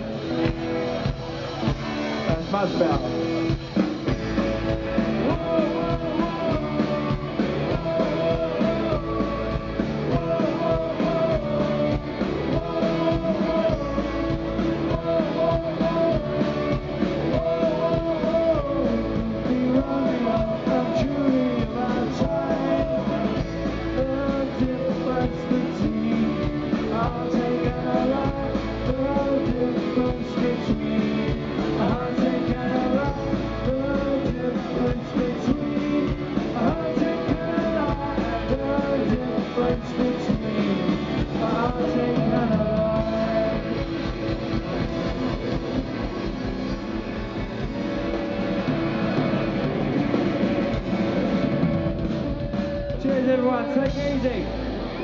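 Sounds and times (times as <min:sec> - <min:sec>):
man singing: 0:00.0 - 0:00.6, 0:02.2 - 0:44.8, 0:52.3 - 0:55.0
electric guitars: 0:00.0 - 0:55.0.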